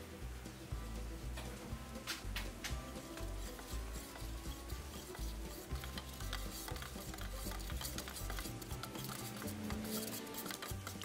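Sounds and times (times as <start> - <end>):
paint swishing: 3.0 - 11.0
stick clicking against tin: 4.9 - 11.0.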